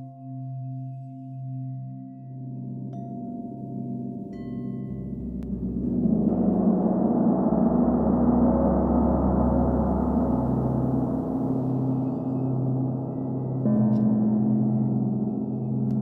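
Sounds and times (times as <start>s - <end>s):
large gong shimmering: 4.8s - 16.0s.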